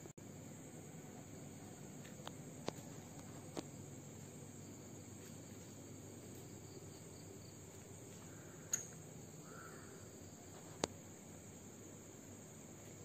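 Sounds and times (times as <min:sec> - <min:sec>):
insects chirring: 0:00.0 - 0:13.0
sharp click: 0:08.7 - 0:09.0.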